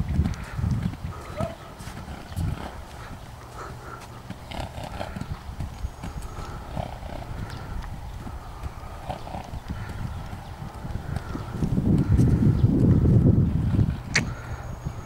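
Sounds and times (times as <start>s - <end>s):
horse hoofbeats on gravel: 0.0s - 13.1s.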